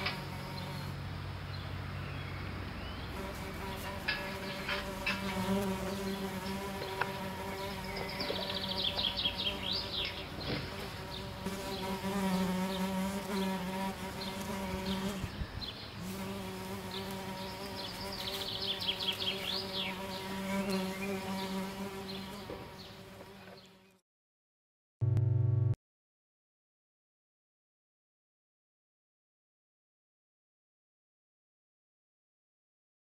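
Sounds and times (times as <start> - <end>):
insect-like buzzing: 3.2 - 15.3, 16.0 - 23.9.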